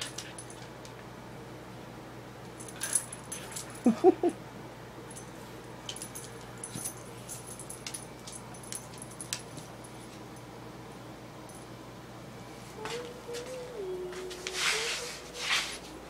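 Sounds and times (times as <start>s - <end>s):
claws clicking on tile floor: 5.9s - 9.8s.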